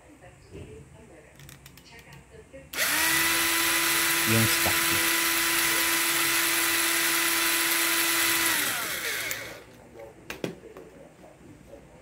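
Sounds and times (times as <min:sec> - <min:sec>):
cordless drill drilling metal: 0:02.8 - 0:09.7.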